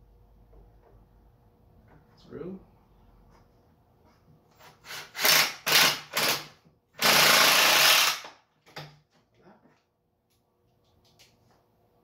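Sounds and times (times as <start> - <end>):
cordless drill driving screw into wood: 4.7 - 8.4.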